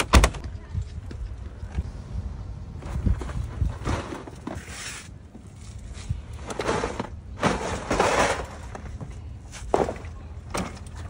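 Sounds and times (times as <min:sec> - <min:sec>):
steady low rumble: 0:00.4 - 0:04.4
scraping and rustling: 0:02.8 - 0:10.2.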